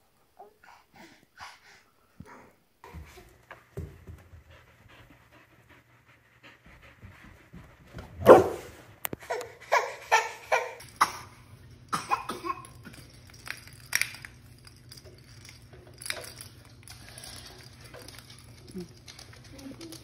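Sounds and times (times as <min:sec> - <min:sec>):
dog panting: 0:04.0 - 0:08.0.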